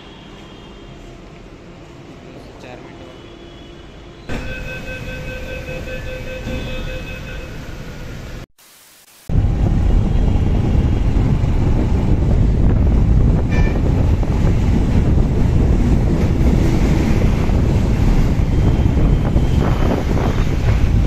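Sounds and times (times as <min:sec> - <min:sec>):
metro train running noise: 0:00.0 - 0:08.4, 0:09.3 - 0:21.0
wind buffeting microphone: 0:09.3 - 0:21.0.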